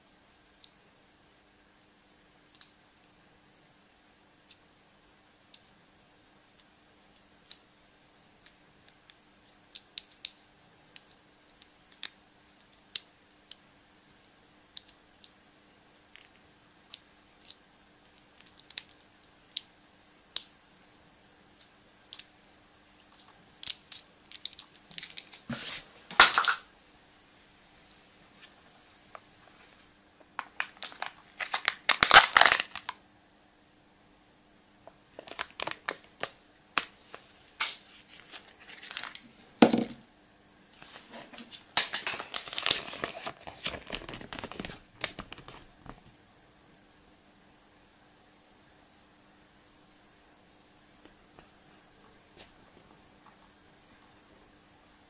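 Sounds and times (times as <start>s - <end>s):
small plastic toys clicking: 18.2s - 19.7s
wrapper crinkling: 30.4s - 33.0s, 35.2s - 36.3s, 37.6s - 39.3s, 40.8s - 45.7s.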